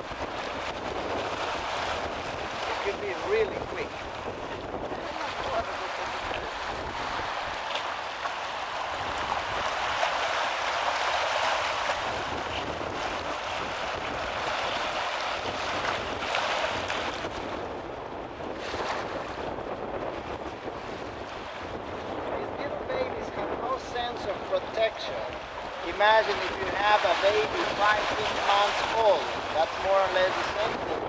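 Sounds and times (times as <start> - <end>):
waves washing over rocks: 0.0 - 31.0
wind buffeting microphone: 0.0 - 31.0.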